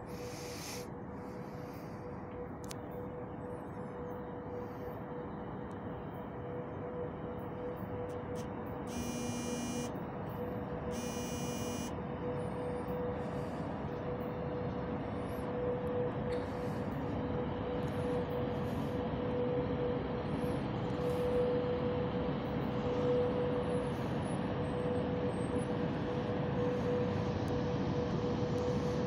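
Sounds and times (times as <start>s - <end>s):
train rumble: 0.0s - 9.1s
locomotive electrical hum: 0.0s - 29.0s
short high-pitched beeps: 8.9s - 9.9s, 10.9s - 11.9s.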